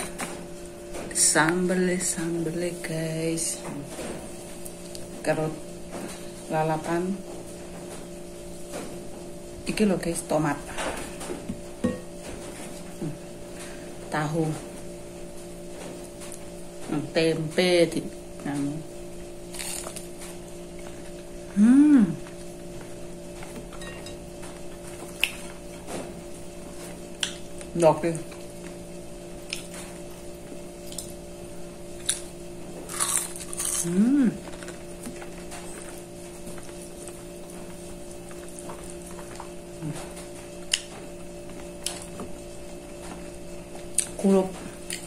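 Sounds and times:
low electrical hum: 0.0s - 45.0s
crunch of a bite: 19.5s - 20.1s, 32.9s - 33.9s
person humming mmm: 21.4s - 22.4s, 33.6s - 34.6s.

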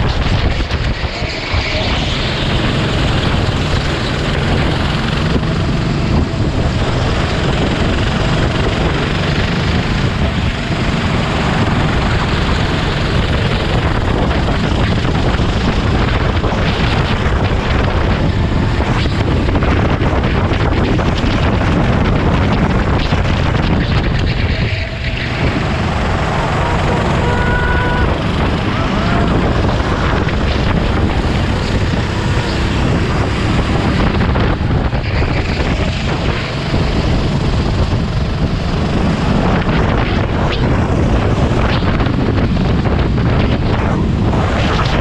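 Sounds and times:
kart engine running hard: 0.0s - 45.0s.

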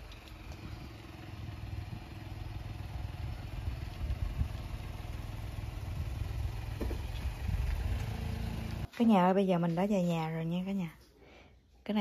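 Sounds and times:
car engine idling: 0.0s - 8.9s.

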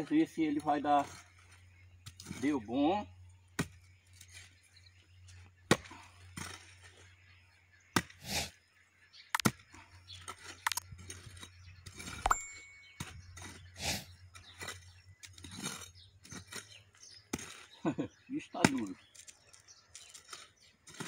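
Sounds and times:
earth scraping: 0.0s - 21.0s
hoe striking hard soil: 9.4s - 9.6s, 10.2s - 17.8s.

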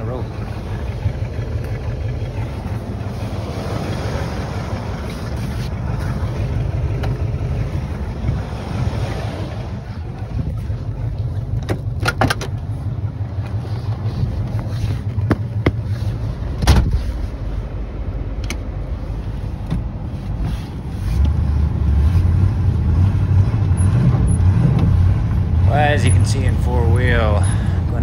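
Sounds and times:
engine exhaust rumble: 0.0s - 28.0s
sharp clicks and knocks: 11.6s - 12.7s.

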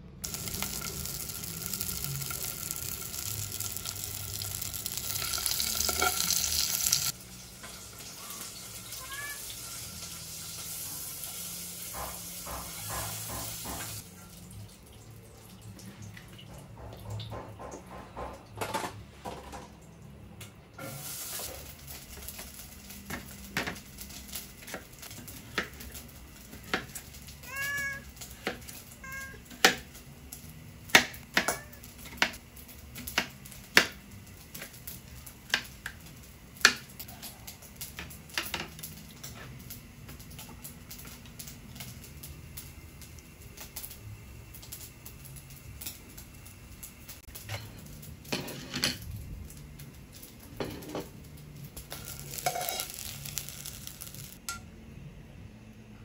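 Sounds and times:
cat meowing: 8.2s - 9.6s, 27.4s - 28.1s, 29.0s - 29.5s.

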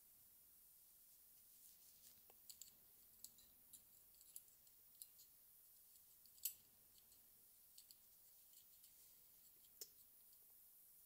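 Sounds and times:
small parts clicking: 2.4s - 5.3s, 5.9s - 9.0s.

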